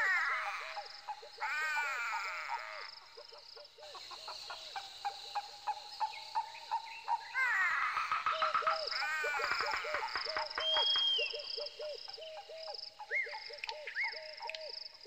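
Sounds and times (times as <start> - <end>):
sharp animal clicks: 13.6 - 14.7.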